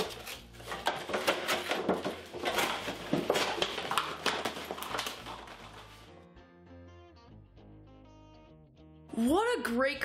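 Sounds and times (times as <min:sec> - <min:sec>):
cardboard carton crinkling and scraping: 0:00.0 - 0:06.1.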